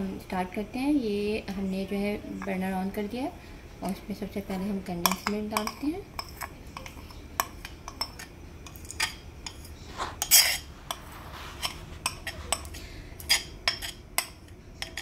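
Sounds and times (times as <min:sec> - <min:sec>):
metal spoon scraping bowl: 0:03.8 - 0:15.0
spoon clinking against pot: 0:05.0 - 0:11.0, 0:11.6 - 0:15.0.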